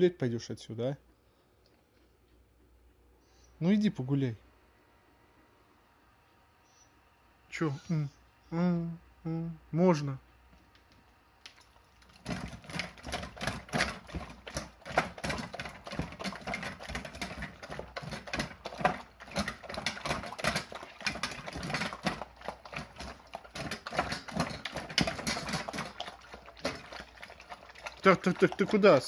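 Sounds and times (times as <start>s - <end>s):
puppies eating kibble: 11.5s - 29.0s.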